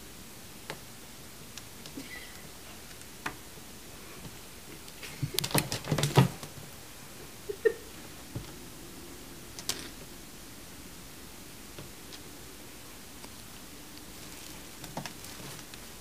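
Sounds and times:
animals scuffling: 13.8s - 16.0s
plastic bags crinkling: 14.0s - 16.0s.

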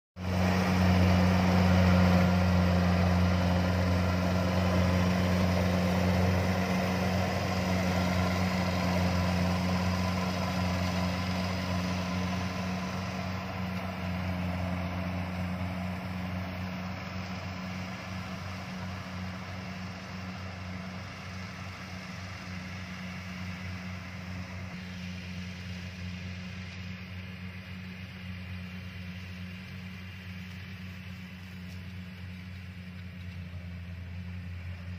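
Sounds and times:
cutting and threshing machinery: 0.2s - 26.8s
combine harvester engine drone: 0.2s - 34.9s.

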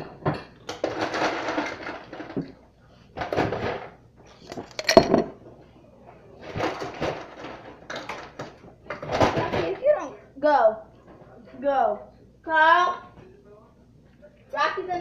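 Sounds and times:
plates and cutlery clinking: 3.4s - 5.4s
ceramic mug set down: 4.5s - 5.4s.

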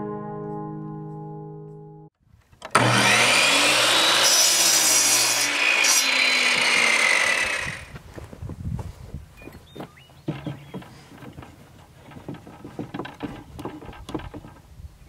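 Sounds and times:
miter saw cutting wood: 2.6s - 7.9s.

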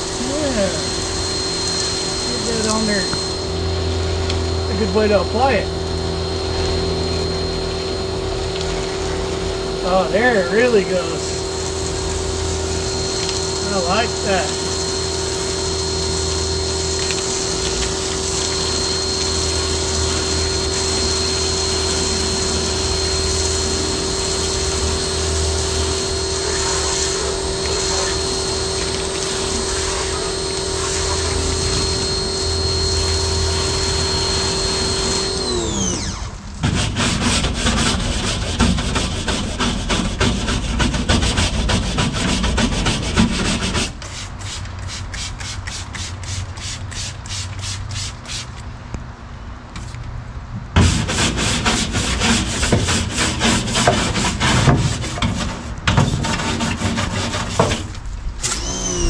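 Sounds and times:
pressure washer motor whine: 0.0s - 44.7s, 57.8s - 59.0s
brush scrubbing metal: 8.8s - 48.6s, 50.8s - 58.0s.

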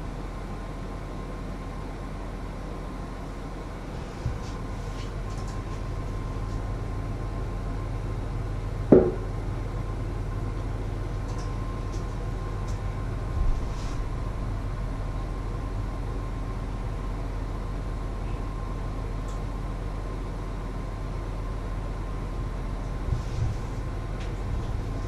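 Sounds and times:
faint steady whine: 0.0s - 25.0s
steady low hum: 0.0s - 25.0s
sharp knock: 8.9s - 9.3s.

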